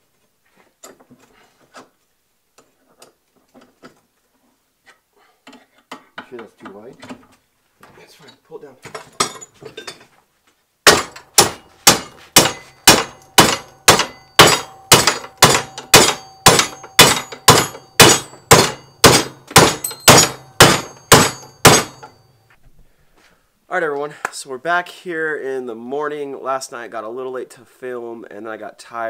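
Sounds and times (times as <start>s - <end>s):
hammer striking steel: 10.9s - 22.3s.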